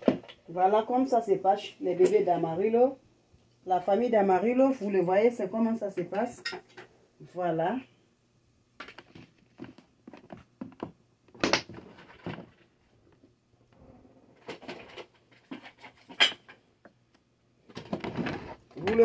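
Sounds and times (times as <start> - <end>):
objects clicking and clattering: 14.4 - 16.6, 17.6 - 19.0.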